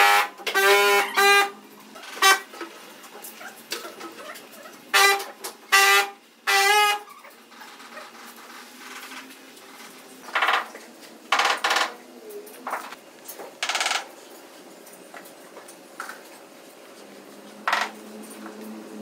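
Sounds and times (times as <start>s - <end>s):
cloth squeaking on wet tiles: 0.0s - 2.6s, 3.3s - 12.0s.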